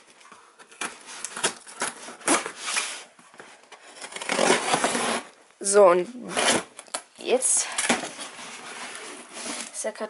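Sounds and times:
blade scraping tape and cardboard: 4.0s - 5.3s
cardboard rustling: 7.8s - 9.9s.

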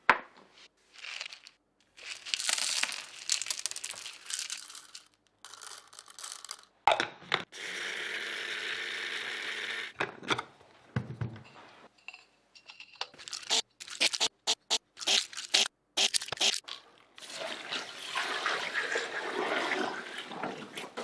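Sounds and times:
coffee beans rattling: 1.0s - 6.7s, 13.2s - 14.3s.

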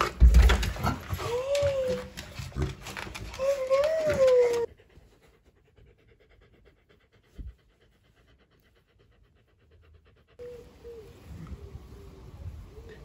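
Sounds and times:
outdoor noise: 0.0s - 13.0s
dog panting: 1.0s - 10.6s.

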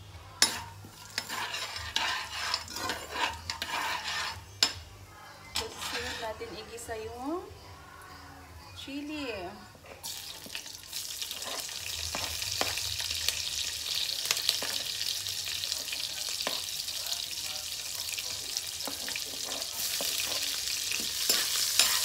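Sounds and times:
chili sizzling in hot oil: 0.0s - 4.8s, 10.0s - 22.0s.

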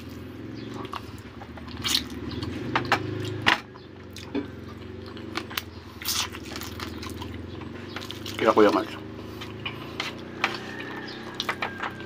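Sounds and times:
steady low hum: 0.0s - 11.9s
man chewing and smacking lips: 0.0s - 12.0s.

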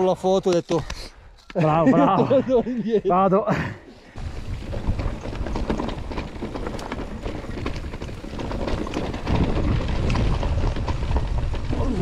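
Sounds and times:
bike rattling over rocks: 4.2s - 12.0s
wind rumbling on microphone: 4.2s - 12.0s.

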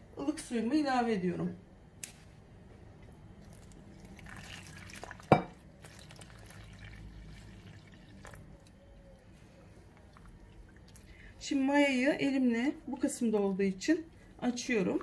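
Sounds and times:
water pouring into bowl: 3.4s - 8.7s, 9.8s - 11.4s
faint water splashing: 3.4s - 12.1s
clink against bowl: 5.3s - 5.6s.

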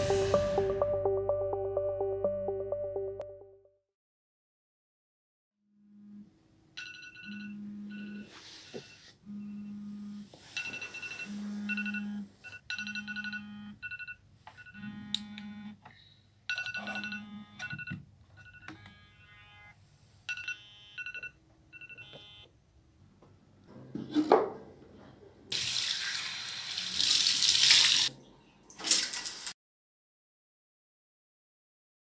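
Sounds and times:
phone alarm chimes: 10.6s - 15.8s, 16.5s - 19.4s, 20.3s - 22.5s
shower water gushing: 25.5s - 28.1s, 28.7s - 29.6s.

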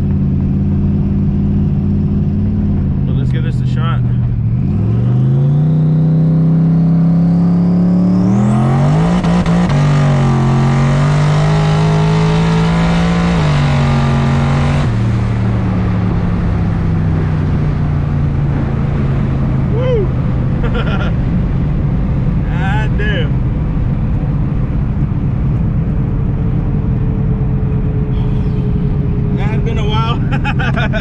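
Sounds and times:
car engine accelerating hard: 0.0s - 31.0s
turbo whine: 25.6s - 30.5s.

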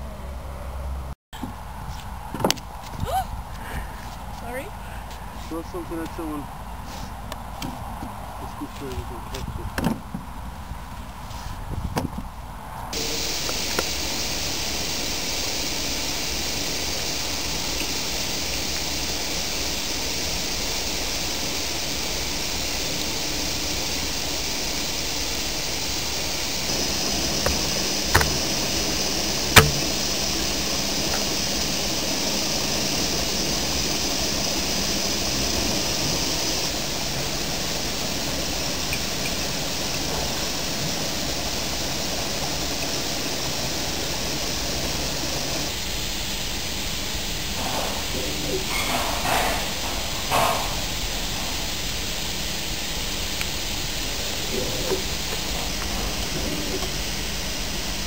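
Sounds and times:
rushing hiss: 2.8s - 9.6s, 12.8s - 58.0s
sharp clicks: 29.6s - 30.0s.

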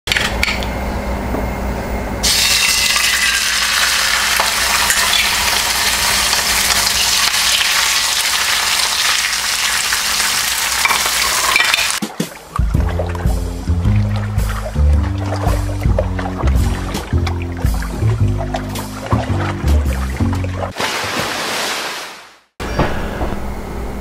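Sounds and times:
fish sizzling in hot oil: 2.2s - 12.0s.

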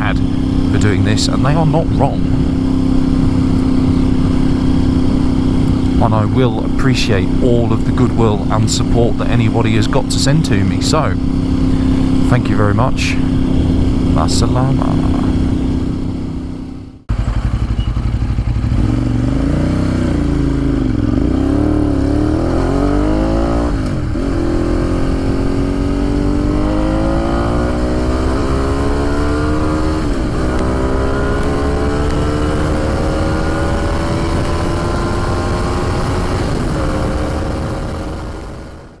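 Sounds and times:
motorcycle engine accelerating: 0.0s - 39.0s
wind and road noise: 0.0s - 39.0s.

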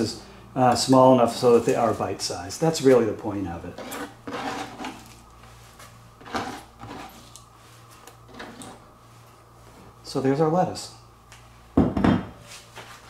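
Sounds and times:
lettuce rustling on cutting board: 1.3s - 2.2s.

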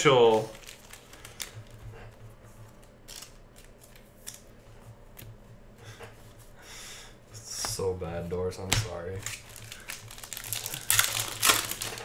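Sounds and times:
cards rustling: 8.6s - 12.0s.

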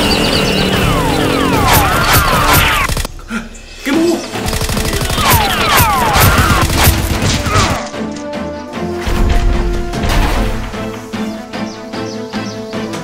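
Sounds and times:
background music: 0.0s - 13.0s
rapid automatic gunfire: 0.8s - 3.1s, 4.4s - 7.4s.

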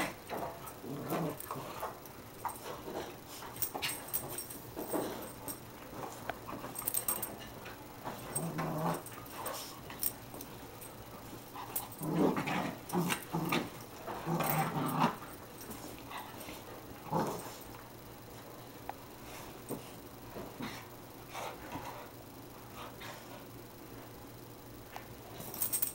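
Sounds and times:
dogs growling: 0.0s - 10.1s, 11.5s - 17.8s.

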